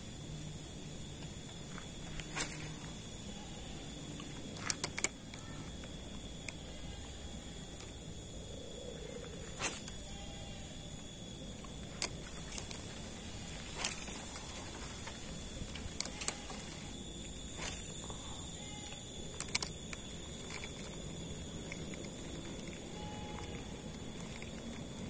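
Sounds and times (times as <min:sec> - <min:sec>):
thin high hum: 0:00.0 - 0:25.0
fishing reel clicks and taps: 0:04.2 - 0:06.6, 0:15.8 - 0:16.7, 0:18.9 - 0:21.0.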